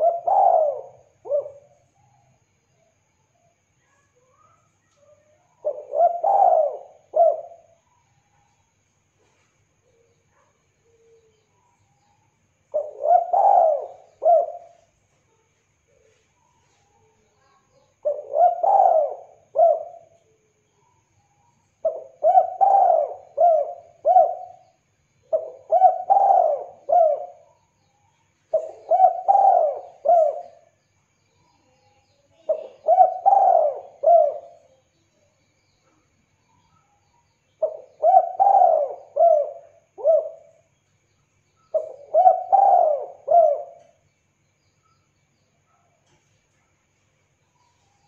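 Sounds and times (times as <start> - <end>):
dove cooing: 0.0 - 2.1, 5.1 - 7.8, 12.7 - 14.9, 18.0 - 20.5, 21.8 - 27.6, 28.5 - 30.8, 32.4 - 34.8, 37.6 - 40.7, 41.7 - 44.0.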